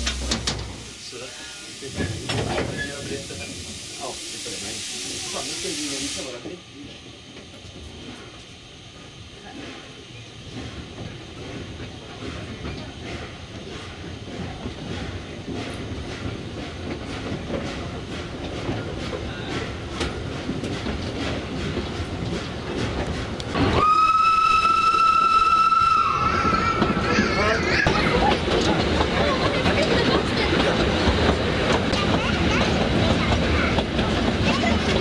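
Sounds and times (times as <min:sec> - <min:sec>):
train wheels clicking over rail joints: 0:00.0 - 0:04.1, 0:07.2 - 0:23.8, 0:24.6 - 0:35.0
steam locomotive whistle: 0:23.6 - 0:26.6.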